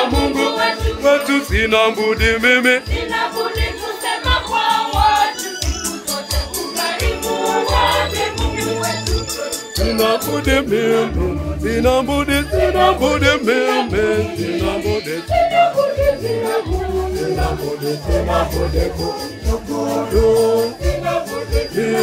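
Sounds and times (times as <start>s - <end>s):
choir singing gospel: 0.0s - 22.0s
steady beat: 0.0s - 22.0s
bass line: 7.8s - 21.2s.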